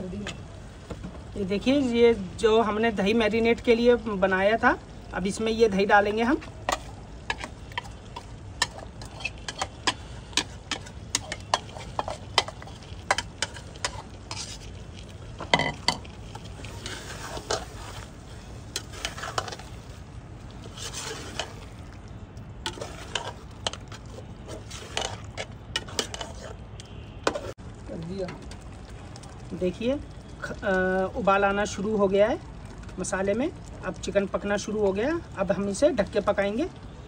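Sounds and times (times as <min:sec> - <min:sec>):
masala sizzling: 0:00.0 - 0:37.0
spoon scraping a pot: 0:06.7 - 0:14.8, 0:15.5 - 0:18.1, 0:18.7 - 0:19.8, 0:20.6 - 0:21.7, 0:22.7 - 0:26.6, 0:27.2 - 0:27.5.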